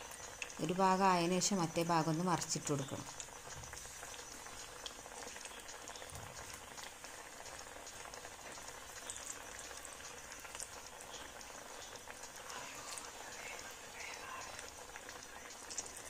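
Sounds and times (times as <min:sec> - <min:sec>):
deep-frying sizzle and bubbling: 0:00.0 - 0:16.0.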